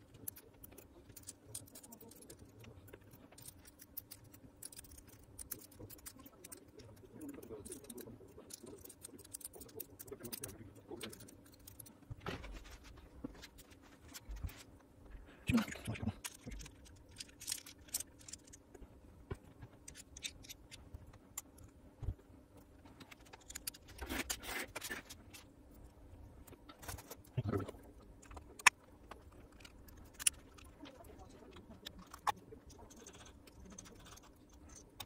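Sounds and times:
small metal parts clicking: 0.1s - 11.9s, 15.7s - 18.8s, 19.8s - 21.7s, 28.2s - 35.0s.

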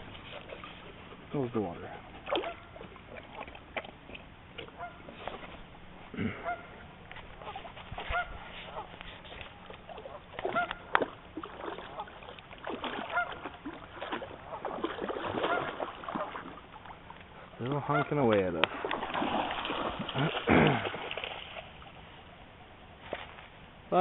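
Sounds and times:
geese honking: 4.8s - 5.1s, 6.4s - 6.8s, 7.4s - 9.0s, 10.0s - 10.9s, 13.1s - 13.4s, 15.4s - 16.4s, 17.8s - 18.2s.

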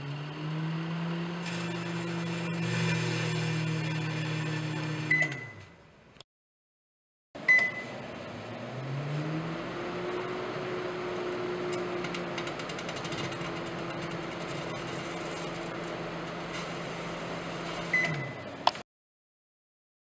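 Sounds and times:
microwave oven humming: 0.0s - 5.7s, 7.4s - 18.7s
microwave beep: 5.0s - 5.8s, 7.4s - 8.0s, 17.9s - 18.5s.

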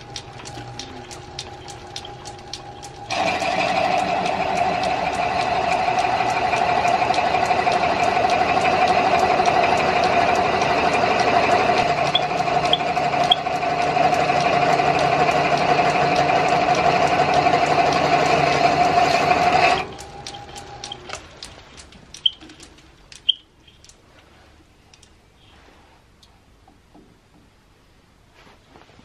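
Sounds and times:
faint ticking: 0.0s - 24.0s
lathe cutting wood: 3.1s - 20.1s.

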